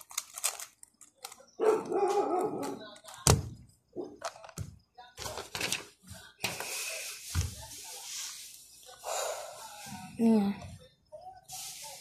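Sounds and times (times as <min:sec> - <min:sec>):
plastic clicks of speed cube: 0:00.0 - 0:01.4
steady hiss: 0:06.4 - 0:10.5, 0:11.4 - 0:12.0.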